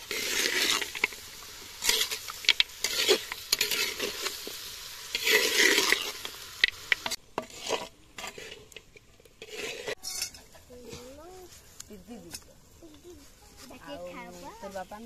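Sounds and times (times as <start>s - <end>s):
spatula scraping a pot: 0.0s - 1.2s, 1.8s - 4.5s, 5.1s - 6.3s, 7.0s - 11.0s
meat sizzling: 0.0s - 10.6s.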